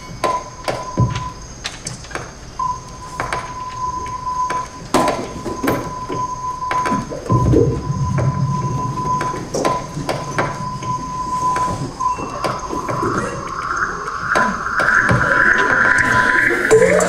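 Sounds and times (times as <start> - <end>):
scattered clicks and knocks: 0.0 - 2.4, 3.2 - 16.1
low hum: 7.3 - 12.1
steady high tone: 7.3 - 17.0.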